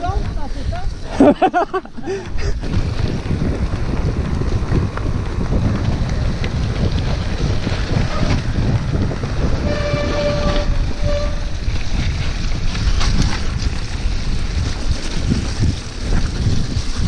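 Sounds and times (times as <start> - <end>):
bike tyres rumbling over rough ground: 0.0 - 17.0
wind buffeting microphone: 0.0 - 17.0.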